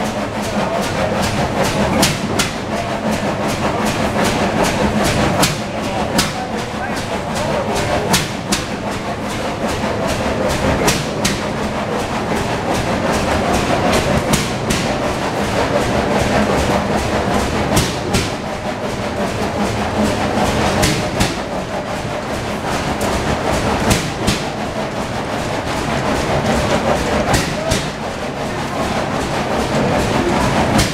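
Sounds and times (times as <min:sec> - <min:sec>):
stationary engines clattering: 0:00.0 - 0:30.9
sharp engine knocks and pops: 0:10.8 - 0:11.5, 0:17.4 - 0:18.4, 0:20.6 - 0:21.5, 0:23.0 - 0:24.6.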